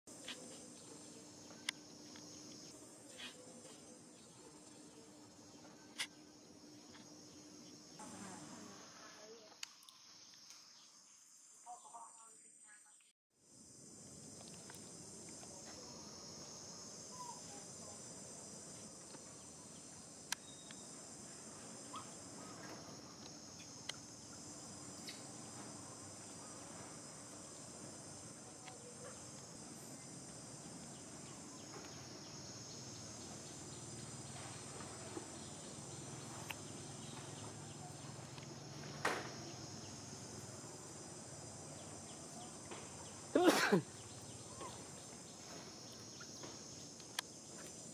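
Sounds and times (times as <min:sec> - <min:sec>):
insect chorus: 0:00.1 - 0:47.9.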